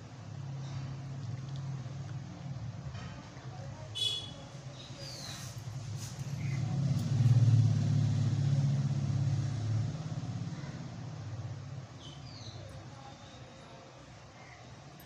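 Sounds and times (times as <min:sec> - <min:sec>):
motor vehicle passing: 0:05.0 - 0:12.0.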